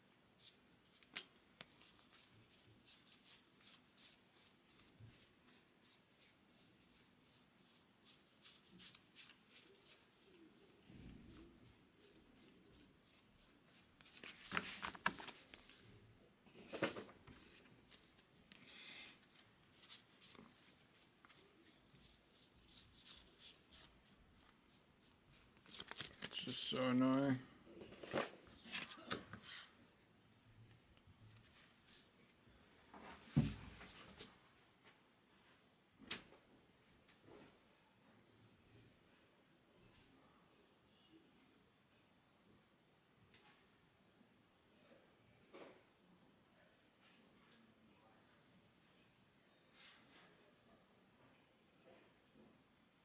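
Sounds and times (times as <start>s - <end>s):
cards clicking and flicking: 25.6s - 27.3s.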